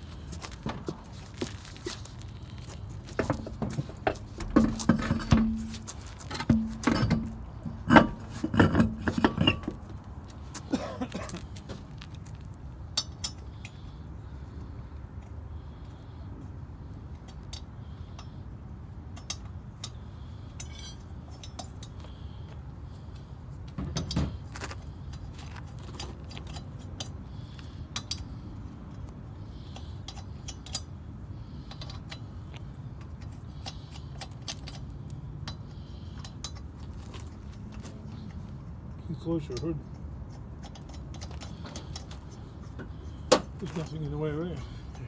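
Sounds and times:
steady low hum: 0:00.0 - 0:45.0
metal nuts clicking and jingling: 0:20.6 - 0:22.1, 0:39.5 - 0:44.0.

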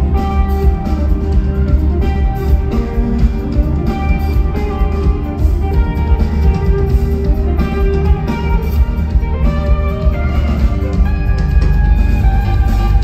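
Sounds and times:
electric guitar: 0:00.0 - 0:13.0
heavy steady bass: 0:00.0 - 0:13.0
live rock band playing: 0:00.0 - 0:13.0.

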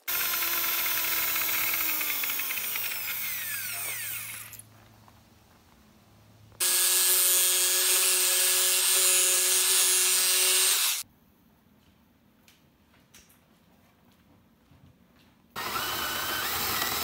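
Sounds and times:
electric jigsaw cutting plastic: 0:00.0 - 0:04.6, 0:06.6 - 0:11.0, 0:15.6 - 0:17.0.

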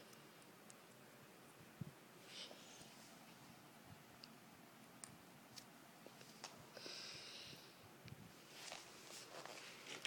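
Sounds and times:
faint handling rustling: 0:08.3 - 0:10.0.

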